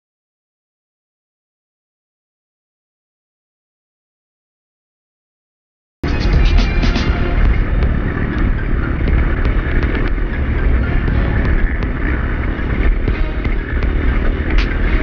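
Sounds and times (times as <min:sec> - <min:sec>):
dirt bike engine rumble: 0:06.0 - 0:15.0
wind noise: 0:06.0 - 0:15.0.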